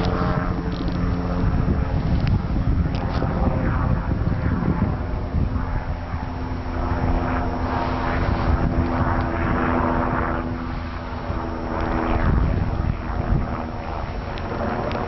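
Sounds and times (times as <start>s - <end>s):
helicopter engine and rotor hum: 0.0s - 15.0s
rushing noise: 6.5s - 9.4s.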